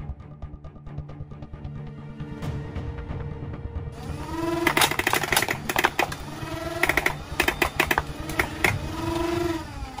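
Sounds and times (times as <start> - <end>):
short motor whines: 4.0 - 10.0
toy blaster dart shots: 4.2 - 10.0.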